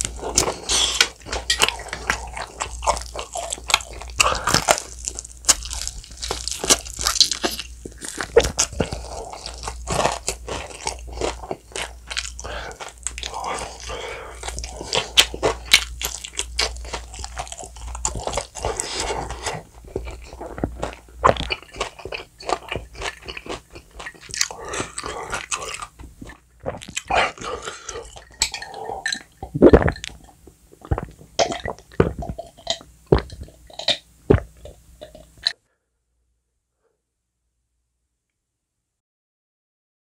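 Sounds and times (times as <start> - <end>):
wet crunching of chewing: 0.0 - 35.6
mouth clicks and smacks: 17.2 - 35.6.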